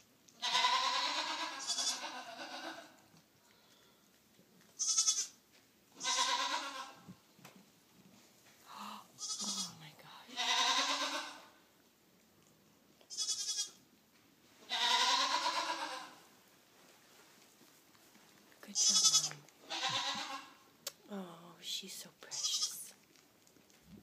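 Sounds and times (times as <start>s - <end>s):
lamb high quavering bleats: 0.4s - 2.9s, 4.8s - 5.4s, 6.0s - 7.0s, 9.2s - 9.7s, 10.4s - 11.5s, 13.1s - 13.8s, 14.7s - 16.2s, 18.8s - 20.6s
sheep low bleats: 0.4s - 3.0s, 4.8s - 5.4s, 6.0s - 7.0s, 9.2s - 9.7s, 10.4s - 11.6s, 13.1s - 13.8s, 14.7s - 16.2s, 18.8s - 20.6s.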